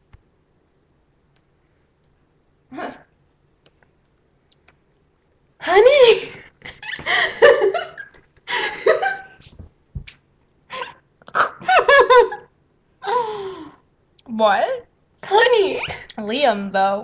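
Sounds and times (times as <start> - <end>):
girl laughing: 5.9 - 9.5, 10.7 - 13.5.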